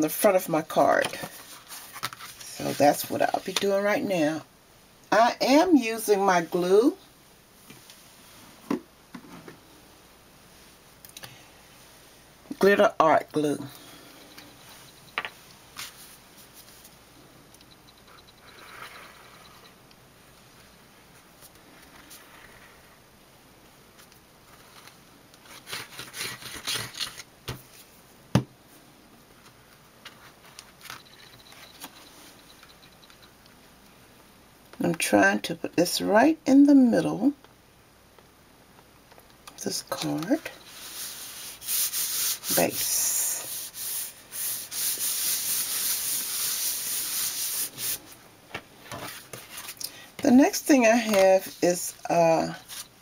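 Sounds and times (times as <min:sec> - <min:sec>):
cardstock rubbing and rustling: 0:24.5 - 0:27.3
hands rubbing cardstock: 0:40.7 - 0:48.0.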